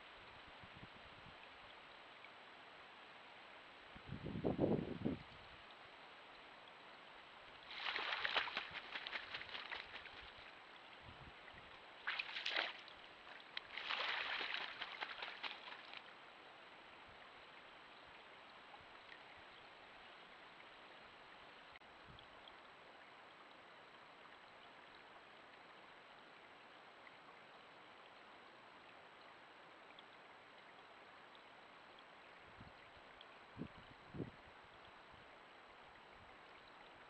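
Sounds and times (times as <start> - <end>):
faint hiss: 0.0 - 37.0
bird splashing in water: 7.6 - 10.5, 12.0 - 16.0.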